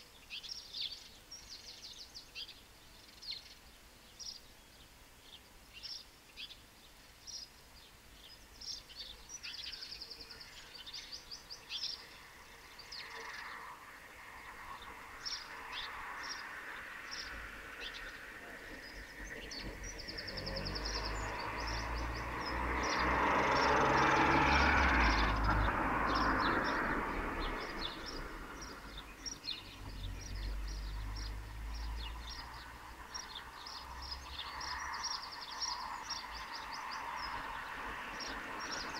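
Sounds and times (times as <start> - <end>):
small birds chirping: 0.0 - 38.9
vehicle passing: 12.2 - 38.9.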